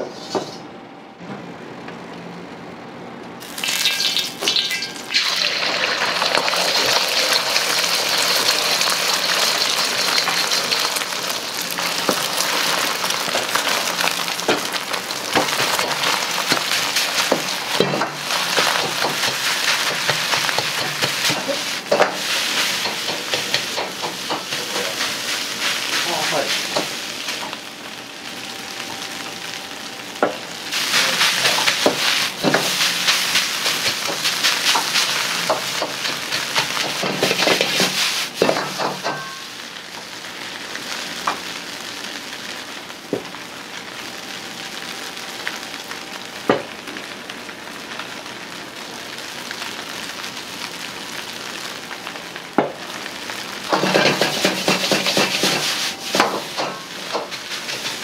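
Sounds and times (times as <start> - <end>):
ladle clanking and scraping wok: 0.0 - 0.7, 3.8 - 11.1, 15.3 - 27.6, 30.7 - 39.5, 53.7 - 58.0
egg sizzling in hot oil: 3.4 - 58.0.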